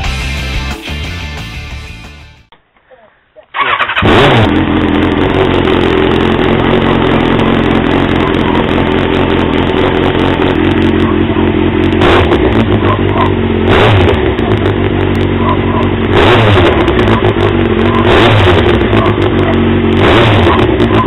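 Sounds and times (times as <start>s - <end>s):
motorcycle engine idling: 4.6s - 21.0s.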